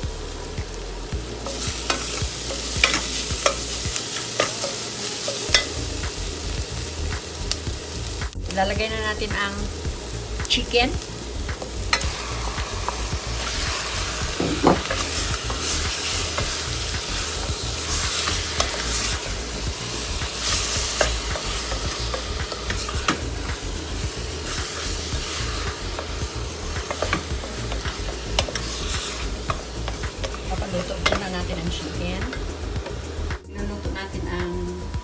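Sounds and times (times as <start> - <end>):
chicken sizzling in hot oil: 0.0 - 35.0
wooden spatula scraping a pot: 24.3 - 31.9.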